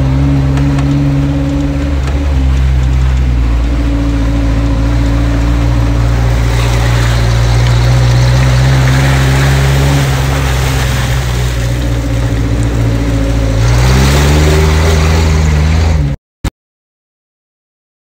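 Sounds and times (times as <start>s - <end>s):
off-road vehicle engine: 0.0s - 16.2s
tyre and road noise: 0.0s - 16.2s.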